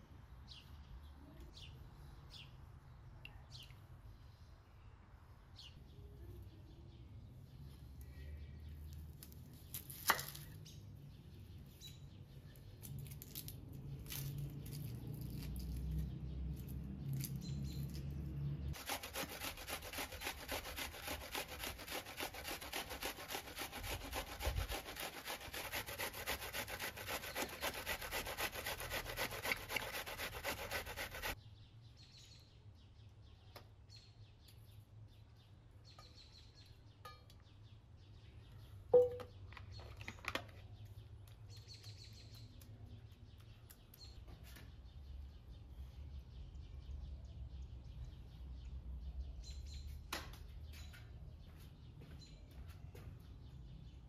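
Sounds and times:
onion rasping on grater: 18.8s - 31.4s.

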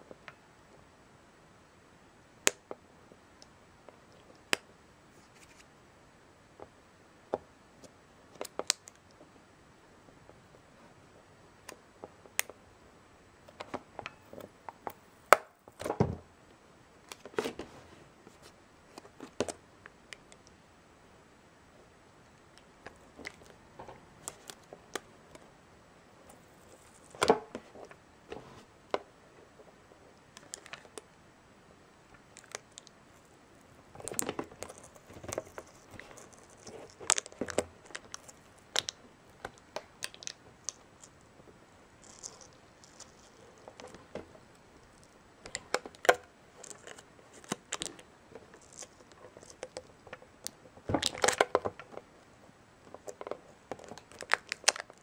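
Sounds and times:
plastic case crinkling and clicking: 34.0s - 41.2s, 42.0s - 52.1s, 52.9s - 55.0s.

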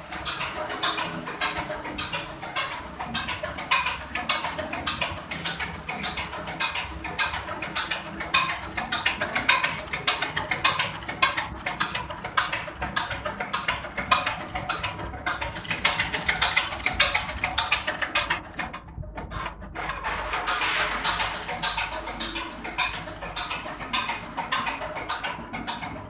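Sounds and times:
diesel injection pump ticking: 0.1s - 18.9s.

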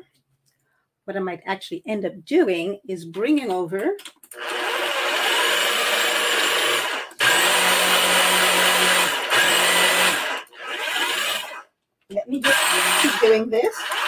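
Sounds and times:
food processor motor running: 4.4s - 11.7s, 12.4s - 14.0s.

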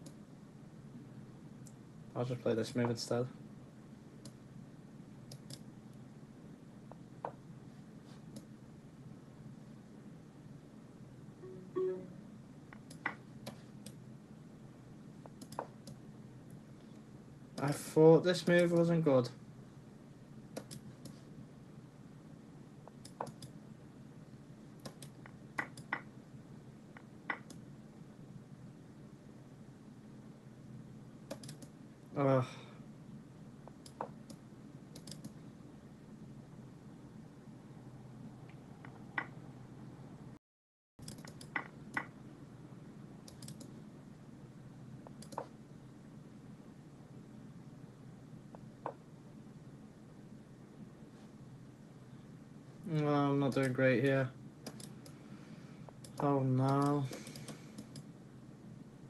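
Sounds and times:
low steady hum: 0.0s - 40.4s, 41.0s - 59.0s
computer mouse clicking: 5.2s - 5.7s, 12.8s - 14.0s, 15.2s - 16.0s, 20.5s - 21.2s, 22.9s - 23.6s, 24.8s - 26.0s, 31.3s - 31.8s, 33.7s - 35.4s, 41.0s - 42.1s, 43.2s - 43.8s, 45.0s - 45.5s, 54.6s - 55.2s, 55.9s - 58.1s.

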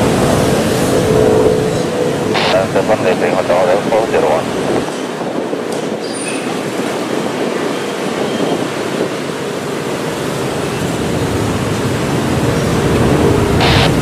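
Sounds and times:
jet engine rushing: 0.0s - 4.9s, 11.8s - 14.0s.

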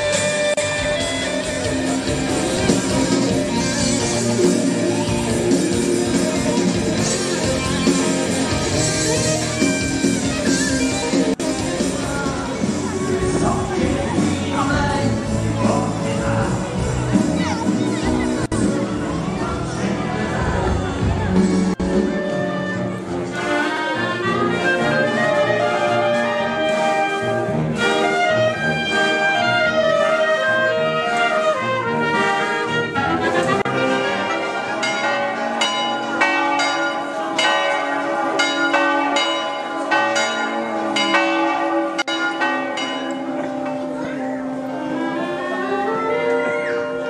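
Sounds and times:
brass band playing: 0.0s - 13.2s, 21.2s - 47.0s.

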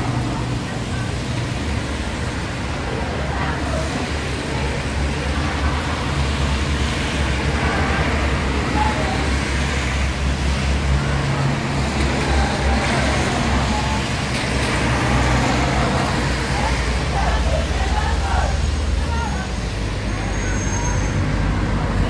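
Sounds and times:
faint crowd voices: 0.0s - 22.0s.

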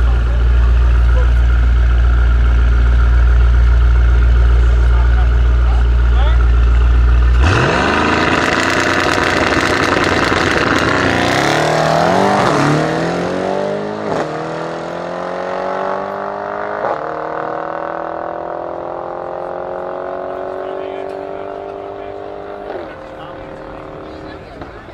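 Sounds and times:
cars accelerating hard: 7.1s - 24.9s
exhaust cracks on gear shifts: 7.3s - 11.5s.

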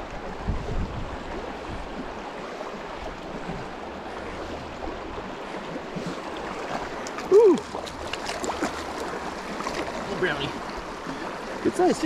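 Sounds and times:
wind rumble on microphone: 0.0s - 2.3s
creek water rushing: 0.0s - 12.0s.

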